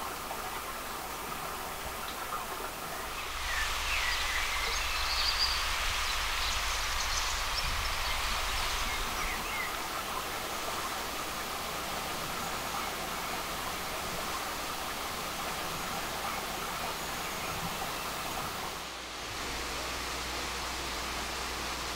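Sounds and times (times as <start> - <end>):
bird chirps: 3.2 - 9.8.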